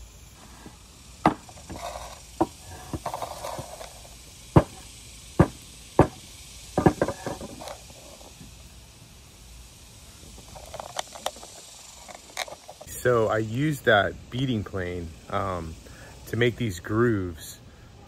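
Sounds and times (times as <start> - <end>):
hard wooden knocks: 1.2 - 3.2, 4.6 - 4.8, 5.4 - 6.2, 6.8 - 7.6.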